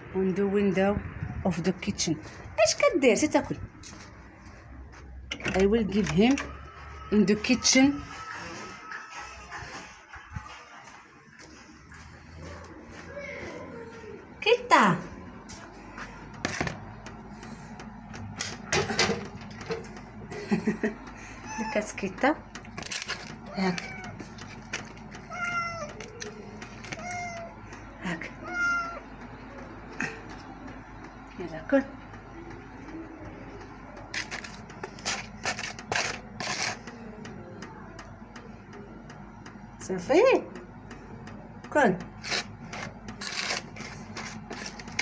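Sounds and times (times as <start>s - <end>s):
scraping and rustling handling noises: 22.1s - 27.4s, 34.0s - 37.0s, 42.2s - 45.0s.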